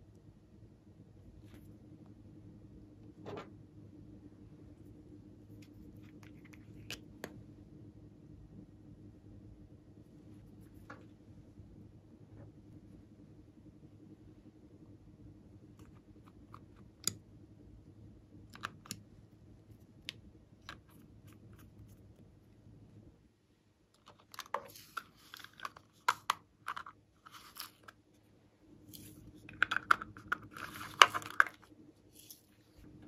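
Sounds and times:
plastic containers clicking: 29.5 - 31.7.

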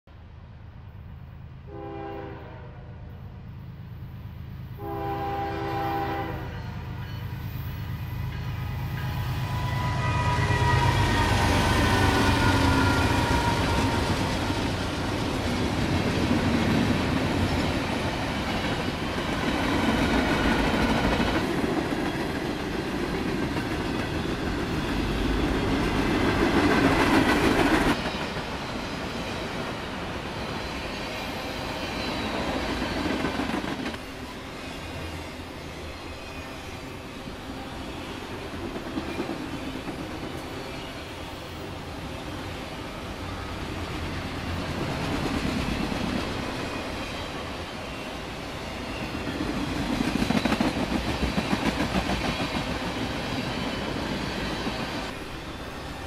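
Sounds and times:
train horn blasts: 1.7 - 3.3, 4.8 - 7.3, 8.4 - 14.7.

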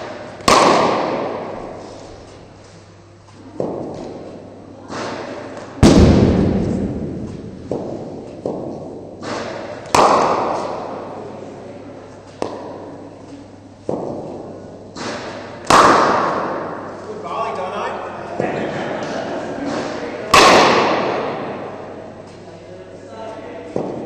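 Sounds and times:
bat striking cricket ball: 0.0 - 1.8, 5.0 - 11.2, 13.9 - 16.9, 20.3 - 21.8
balls hitting nets: 0.0 - 2.5, 3.3 - 11.5, 12.1 - 17.1, 19.7 - 22.4, 23.7 - 24.0.

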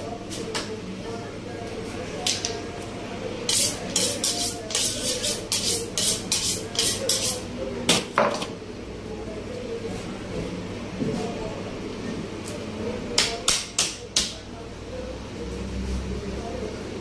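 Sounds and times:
knife scraping on sharpening steel: 3.5 - 7.5.

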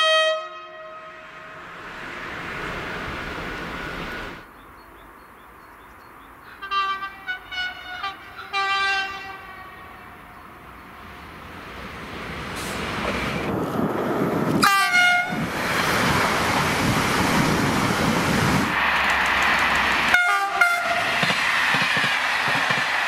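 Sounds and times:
train horn toots and blasts: 0.0 - 1.7, 6.6 - 10.4, 14.6 - 15.5, 20.1 - 21.2
train wheel and rail noise: 0.0 - 23.0.

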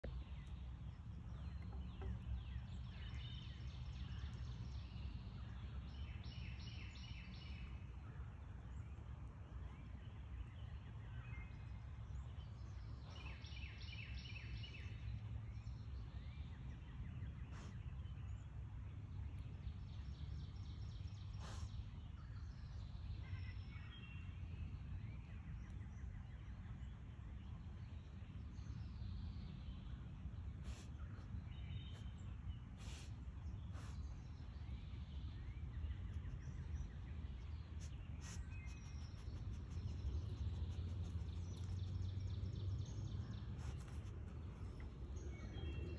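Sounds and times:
songbird singing: 0.0 - 45.9
low rumble: 24.2 - 45.9.

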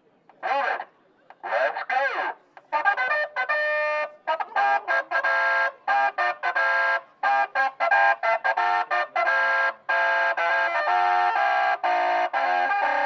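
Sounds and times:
musical car horn tune: 2.9 - 4.2, 4.8 - 13.0.

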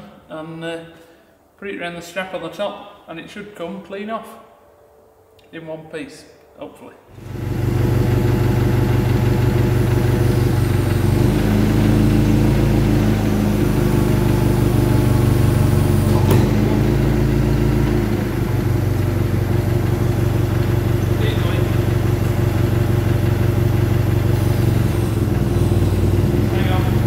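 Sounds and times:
forklift engine idling: 7.2 - 27.0.

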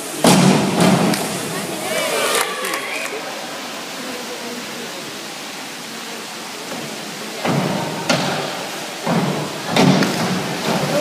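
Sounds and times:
diving boards thudding and rattling: 0.0 - 1.5, 6.7 - 11.0
pool hall noise hiss: 0.0 - 11.0.

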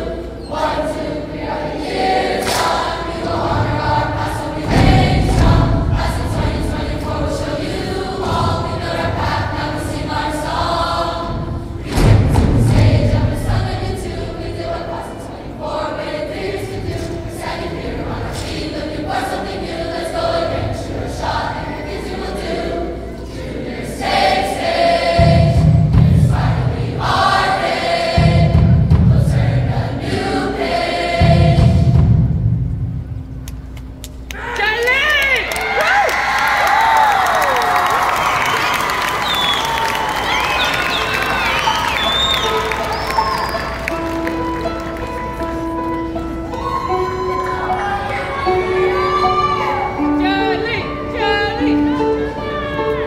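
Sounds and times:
choir singing: 0.0 - 32.5, 37.1 - 53.0
heavy low thumps: 3.3 - 15.0, 25.2 - 30.4, 31.2 - 33.4.

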